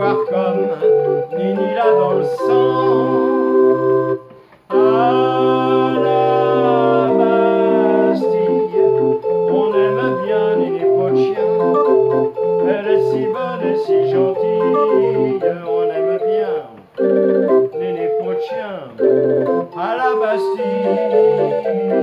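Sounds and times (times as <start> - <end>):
street organ playing: 0.0 - 22.0.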